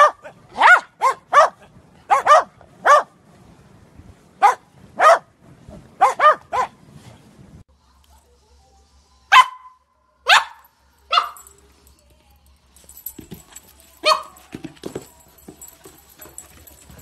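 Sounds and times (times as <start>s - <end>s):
dog barking: 0.0s - 3.2s, 4.4s - 5.3s, 6.0s - 6.8s, 9.3s - 11.5s, 14.0s - 14.4s
soft thumps: 12.9s - 17.0s.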